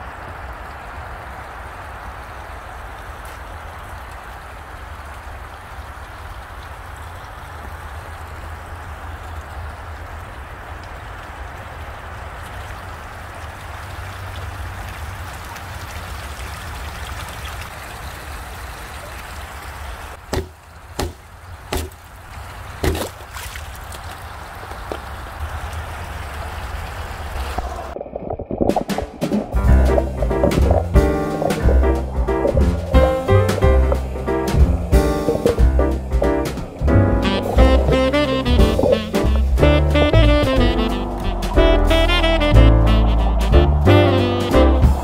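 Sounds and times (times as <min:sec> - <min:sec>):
waterfall splashing into pond: 0:00.0 - 0:45.0
sharp knocks: 0:20.3 - 0:22.0, 0:22.8 - 0:23.1, 0:28.6 - 0:39.4.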